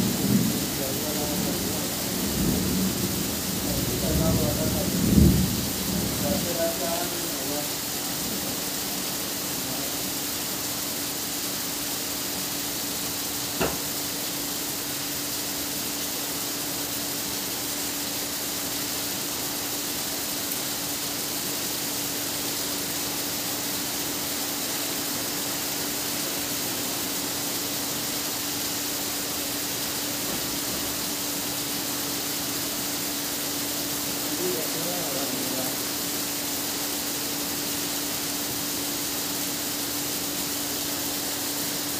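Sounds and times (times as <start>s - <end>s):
rain falling: 0.0s - 41.9s
sharp tap: 13.6s - 13.9s.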